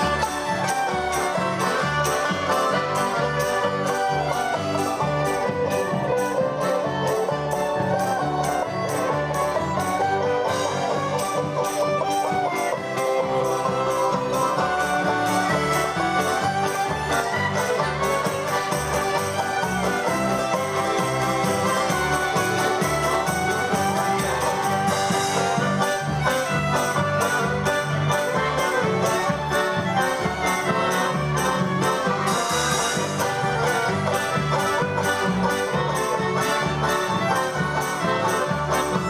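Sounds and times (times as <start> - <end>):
accordions: 0.0 - 39.0
acoustic guitar: 0.0 - 39.0
fiddle: 0.0 - 39.0
plucked strings: 0.0 - 39.0.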